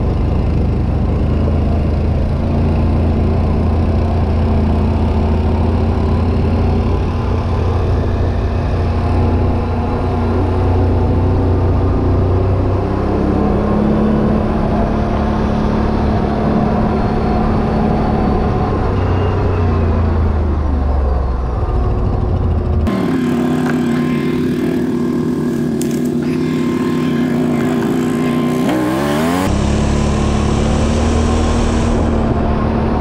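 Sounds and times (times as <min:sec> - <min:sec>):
atv engine running: 0:00.0 - 0:33.0.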